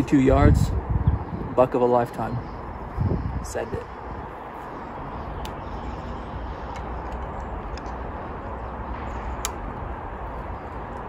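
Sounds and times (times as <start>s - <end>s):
outdoor background noise: 0.0s - 11.0s
faint sharp clicks: 5.4s - 5.6s.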